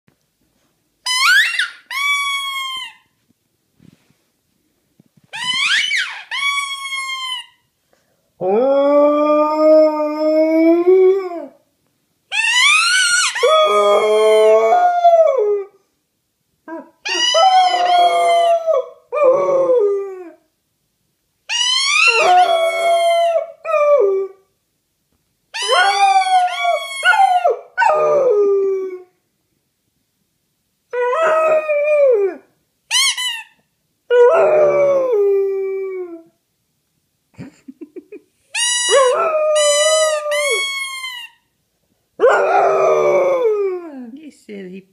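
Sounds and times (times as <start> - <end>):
squeaky toy squeaks: 1.0 - 3.1, 5.3 - 7.7, 12.3 - 13.5, 17.0 - 17.5, 21.5 - 22.2, 25.6 - 27.2, 32.9 - 33.6, 38.5 - 41.5
dog howling: 12.3 - 15.7, 16.7 - 20.4, 21.5 - 24.4, 25.6 - 29.1, 34.1 - 36.3, 38.8 - 41.2, 42.2 - 44.0.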